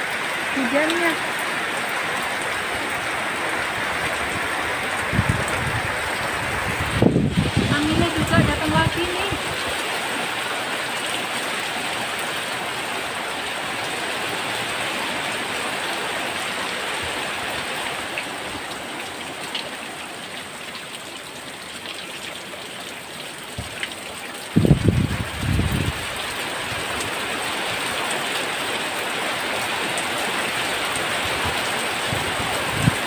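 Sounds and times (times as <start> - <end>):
heavy rain falling: 0.0 - 33.0
wind buffeting microphone: 3.6 - 9.8, 24.5 - 26.8, 31.3 - 33.0.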